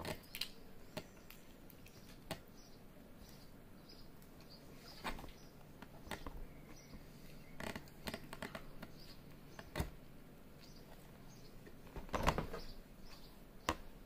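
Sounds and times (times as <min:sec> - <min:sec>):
crunching pizza crust: 0:00.0 - 0:02.5, 0:04.8 - 0:10.0.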